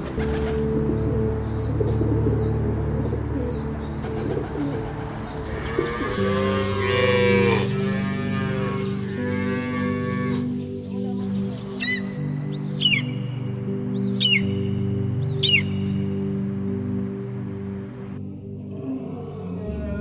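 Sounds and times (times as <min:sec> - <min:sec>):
background music: 0:00.0 - 0:20.0
cattle mooing: 0:05.5 - 0:10.5, 0:18.5 - 0:20.0.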